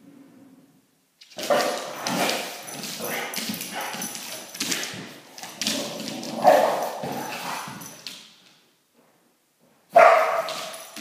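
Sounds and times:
dogs barking: 0:06.4 - 0:07.6, 0:09.9 - 0:11.0.

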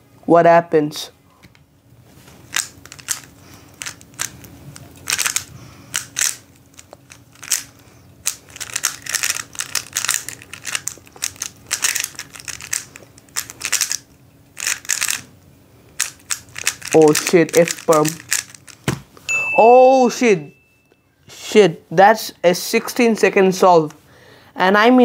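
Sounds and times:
puzzle cube plastic clicks: 0:02.5 - 0:15.3, 0:16.0 - 0:18.8.

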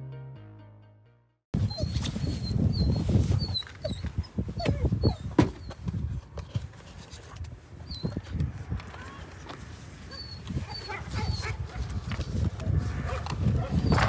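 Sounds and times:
dog whining and whimpering: 0:01.6 - 0:06.0, 0:07.8 - 0:08.3, 0:10.0 - 0:12.0, 0:13.1 - 0:14.0.

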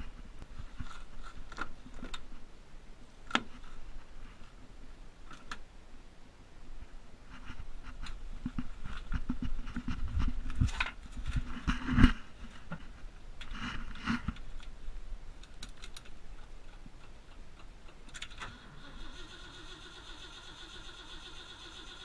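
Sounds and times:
scraping and rustling: 0:00.0 - 0:02.5, 0:07.2 - 0:16.5.

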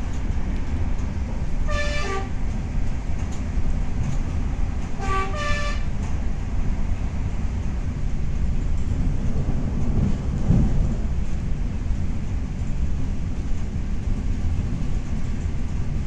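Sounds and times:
train running rumble: 0:00.0 - 0:16.0
two-note train horn: 0:01.6 - 0:02.4, 0:05.0 - 0:05.9.

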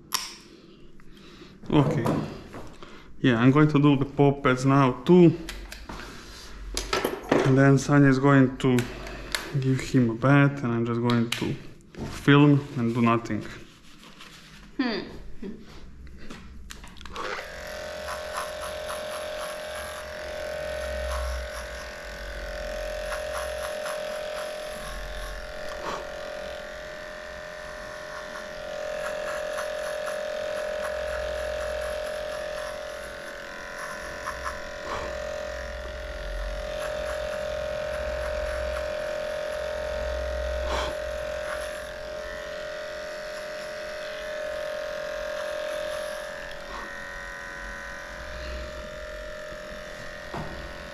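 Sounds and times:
pet clipper motor hum: 0:16.7 - 0:50.9.

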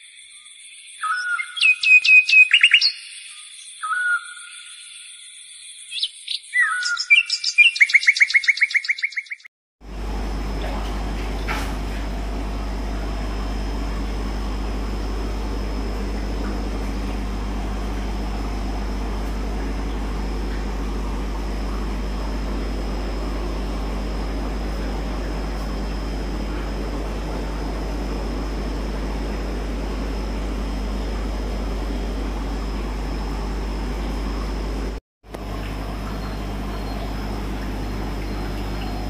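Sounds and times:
low mechanical hum: 0:09.8 - 0:39.0
thin high whine: 0:09.9 - 0:39.0.

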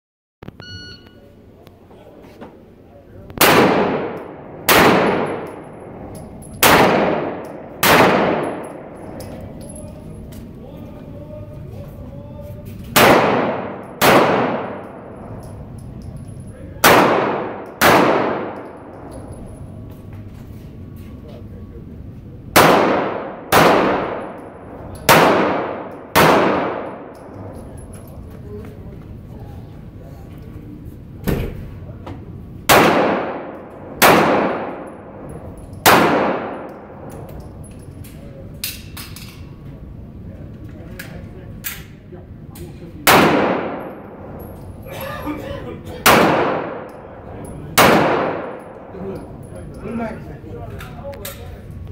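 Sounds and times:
pistol shots echoing indoors: 0:03.4 - 0:10.2, 0:12.9 - 0:16.2, 0:16.8 - 0:19.6, 0:22.5 - 0:28.0, 0:32.6 - 0:39.4, 0:43.0 - 0:44.8, 0:46.0 - 0:49.5.

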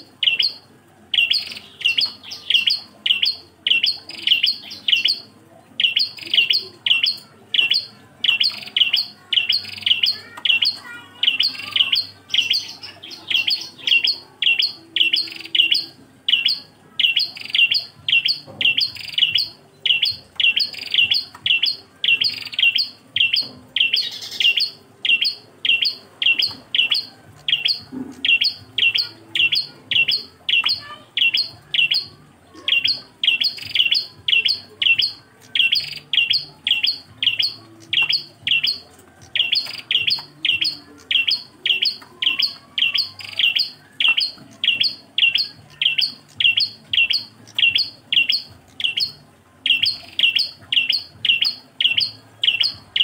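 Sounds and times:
bird chirping: 0:00.0 - 0:53.0.

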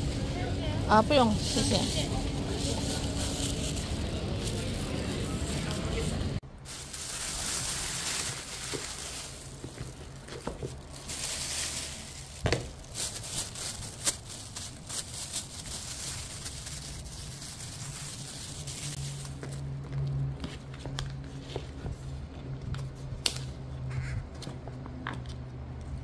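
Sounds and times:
plastic bag rustling: 0:00.0 - 0:19.6.

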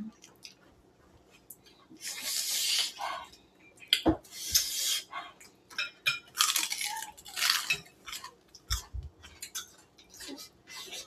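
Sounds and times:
cutlery and dishes clinking: 0:05.7 - 0:06.8, 0:07.4 - 0:11.0
lettuce leaf crunching and rustling: 0:06.4 - 0:08.3.

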